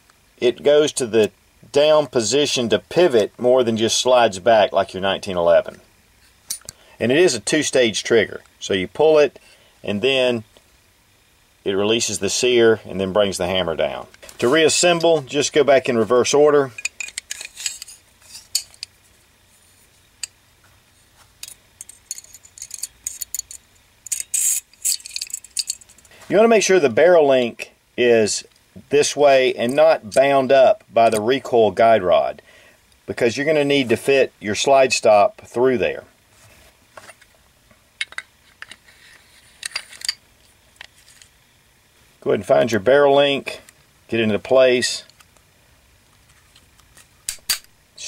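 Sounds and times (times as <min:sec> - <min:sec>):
metal pistol parts clicking: 0:06.5 - 0:06.8, 0:16.8 - 0:19.0, 0:21.4 - 0:26.1, 0:46.8 - 0:47.8.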